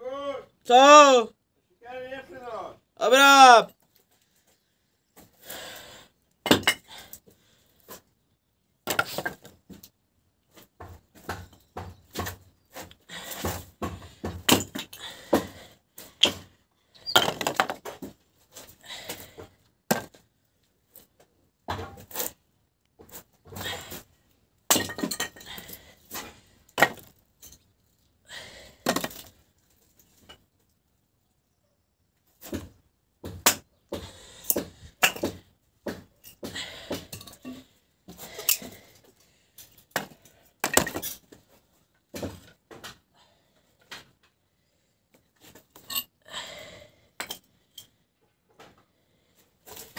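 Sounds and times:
objects clattering and knocking: 16.2s - 20.2s, 23.0s - 27.7s, 28.8s - 30.7s, 32.4s - 43.1s.

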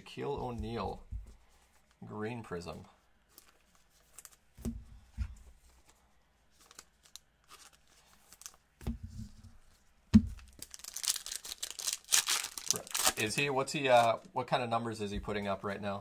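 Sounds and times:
cards and wrappers rustling: 3.2s - 8.8s, 9.6s - 14.3s
dull thumps: 8.8s - 10.5s.

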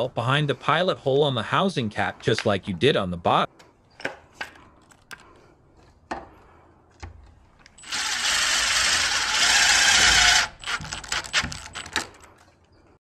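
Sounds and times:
impact driver driving screw: 7.8s - 12.2s
tool clicks: 9.3s - 12.5s.

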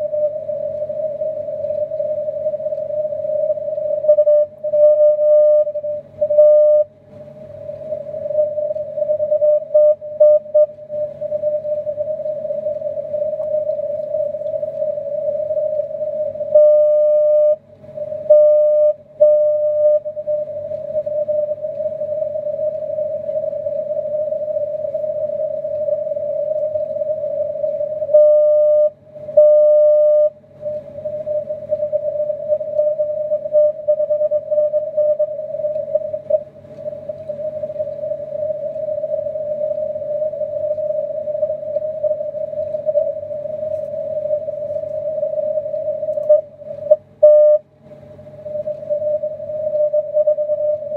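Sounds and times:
morse code tone: 3.4s - 6.9s, 8.3s - 14.4s, 15.1s - 17.6s, 18.2s - 30.4s, 37.3s - 47.7s
radio band noise: 29.6s - 47.2s.

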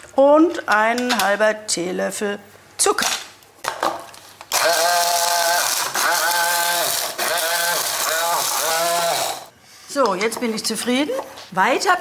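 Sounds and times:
hand blender motor grinding spices: 4.5s - 9.5s.

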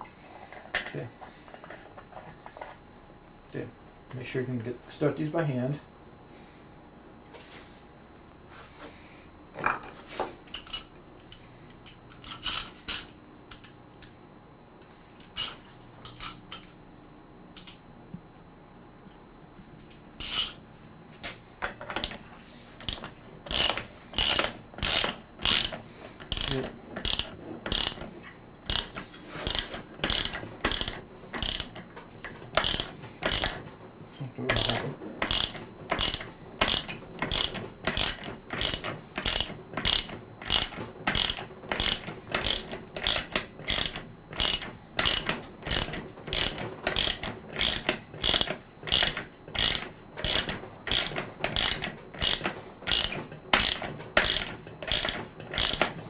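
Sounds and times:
ratchet wrench clicking: 22.8s - 28.0s, 28.7s - 31.8s, 32.6s - 33.6s, 34.6s - 55.9s.

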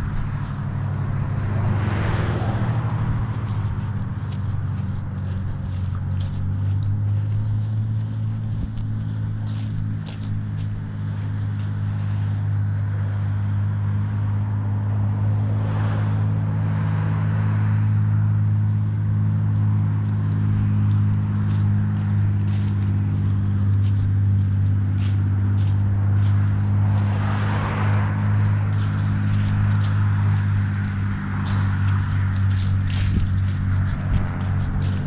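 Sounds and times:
footsteps through grass: 0.0s - 14.4s, 16.7s - 35.0s
steady low hum: 0.0s - 35.0s
vehicles passing: 0.0s - 35.0s.

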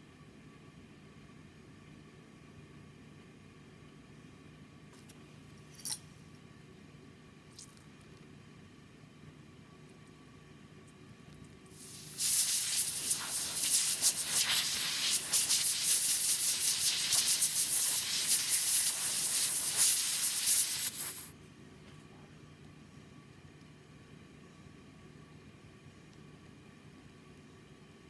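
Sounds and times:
dental air syringe hissing: 11.8s - 21.3s.

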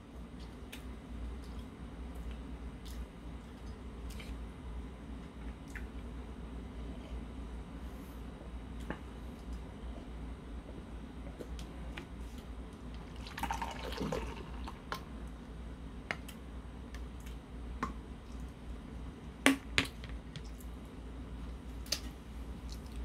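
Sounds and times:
beer pouring into glass: 13.1s - 14.8s.

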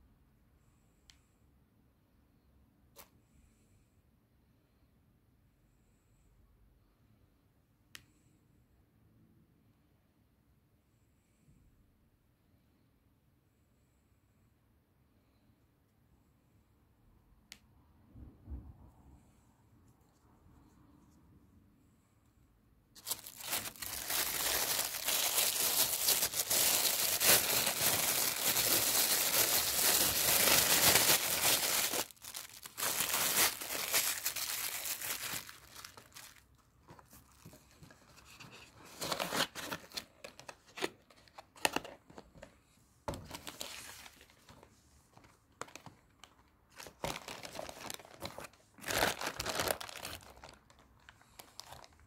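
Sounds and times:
packaging crinkling and rustling: 23.0s - 42.5s, 43.1s - 52.0s.

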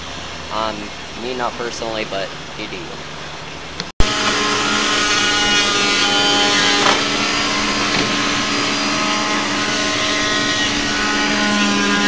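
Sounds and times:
power tool humming and whining: 4.0s - 12.0s.

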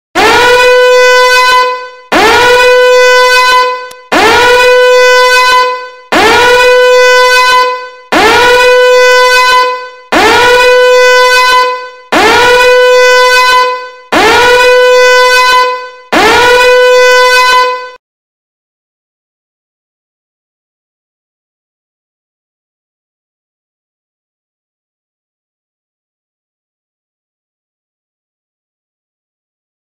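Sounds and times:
horn-like alarm tone blaring: 0.2s - 18.0s.

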